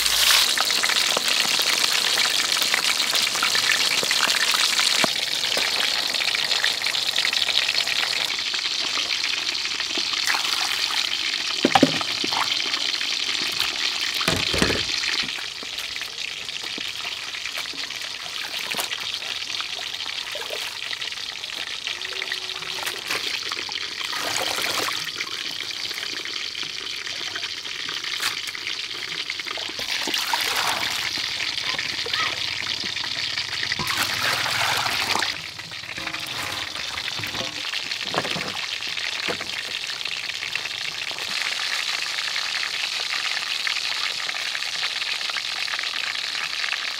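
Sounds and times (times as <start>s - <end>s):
water pouring into a bowl: 0.0s - 15.9s, 16.7s - 43.6s
hot oil sizzling: 0.0s - 46.9s
water sloshing in a steel bowl: 33.8s - 38.6s.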